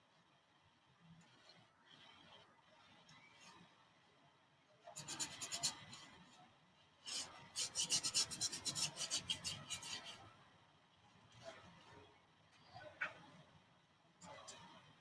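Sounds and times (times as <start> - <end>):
paintbrush scrubbing canvas: 5.0 - 6.0, 7.1 - 10.2.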